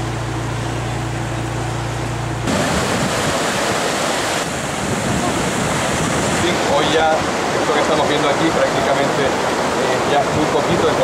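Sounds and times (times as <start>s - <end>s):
low motor hum: 0.0s - 10.9s
wind: 0.0s - 11.0s
surf rushing: 2.3s - 11.0s.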